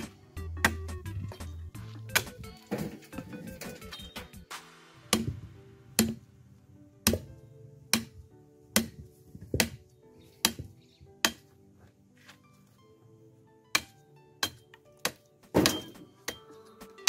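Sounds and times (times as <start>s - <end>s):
background music: 0.0s - 17.0s
machete chopping wood: 2.1s - 3.0s, 5.1s - 5.4s, 6.0s - 6.3s, 7.0s - 7.3s, 7.9s - 9.8s, 10.4s - 11.6s, 13.7s - 16.4s.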